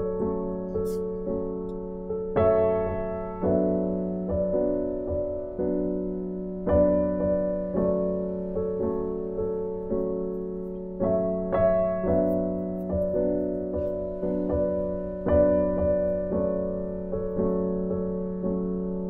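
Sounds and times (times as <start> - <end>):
gentle piano music: 0.0 - 19.0.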